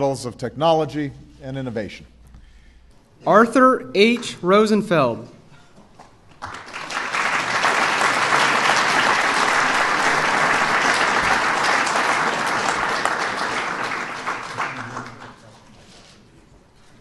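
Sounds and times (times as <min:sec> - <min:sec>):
audience applauding: 0:06.3 - 0:15.5.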